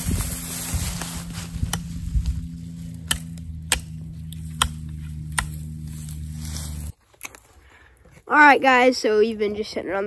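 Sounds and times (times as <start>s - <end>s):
steady low hum: 0.0s - 7.0s
axe chopping branches: 0.4s - 7.5s.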